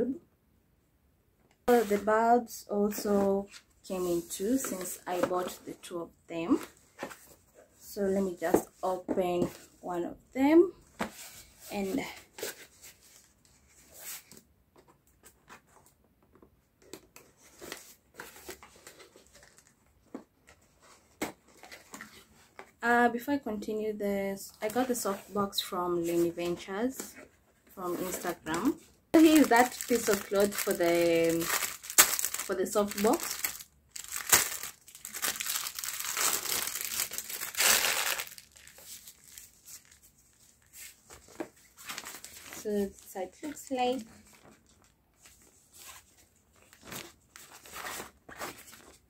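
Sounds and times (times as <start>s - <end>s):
plastic bag crinkling: 29.2s - 40.1s.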